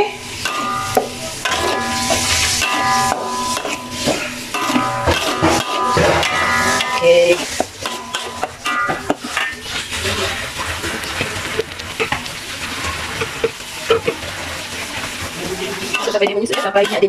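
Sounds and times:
metal spatula scraping a pan: 0:00.0 - 0:17.0
paste sizzling in a wok: 0:00.0 - 0:17.0.

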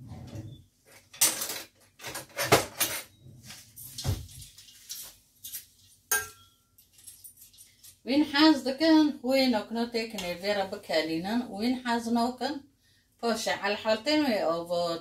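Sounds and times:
metal utensils clinking in drawer: 0:01.1 - 0:03.1.

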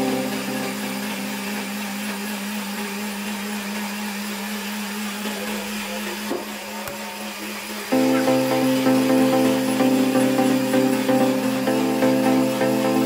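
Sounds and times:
blender motor running: 0:00.0 - 0:13.0.

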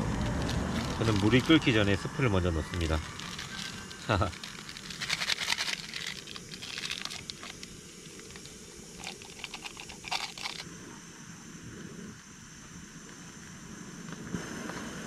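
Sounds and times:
sachet crinkling and tearing: 0:00.0 - 0:01.9, 0:02.6 - 0:10.6.

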